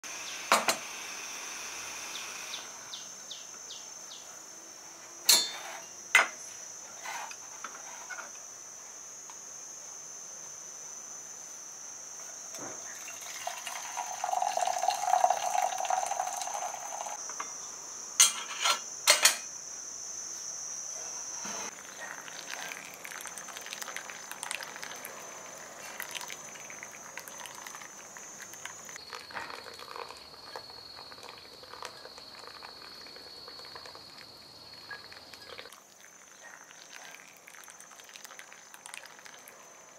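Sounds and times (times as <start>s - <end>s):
metallic clinks of pot and kettle: 5.3s - 5.6s
water trickling onto coffee grounds: 12.8s - 17.2s, 21.7s - 39.9s
water pouring into metal kettle: 12.9s - 17.2s, 21.8s - 34.2s, 34.9s - 39.5s.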